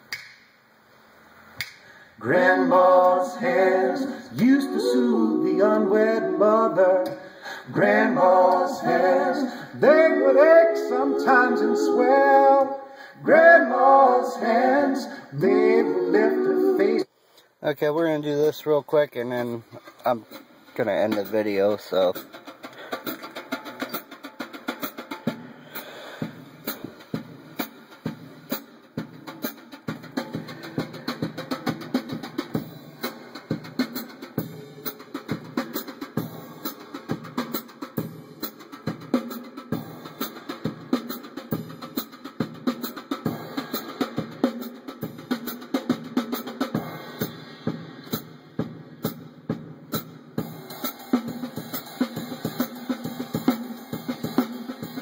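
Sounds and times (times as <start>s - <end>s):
drum-heavy music from car speakers: 19.4s - 55.0s.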